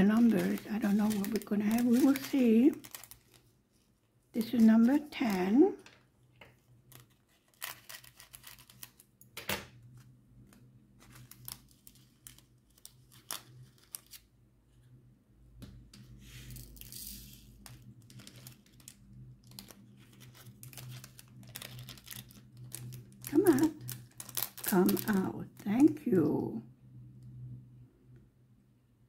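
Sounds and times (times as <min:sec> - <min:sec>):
plastic bag crinkling: 0:00.0 - 0:03.6, 0:04.4 - 0:06.1, 0:06.8 - 0:09.1, 0:11.0 - 0:14.2, 0:16.6 - 0:26.0.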